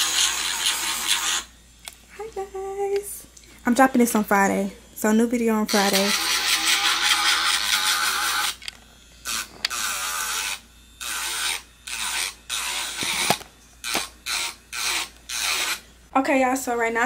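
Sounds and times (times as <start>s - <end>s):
nail file rasping on a nail: 0.0s - 1.5s, 5.7s - 8.6s, 11.0s - 15.8s.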